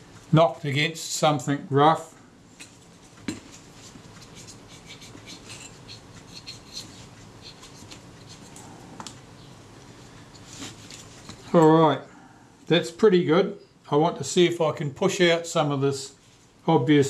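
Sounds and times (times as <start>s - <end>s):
swab rubbing on metal: 3.6s - 8.6s.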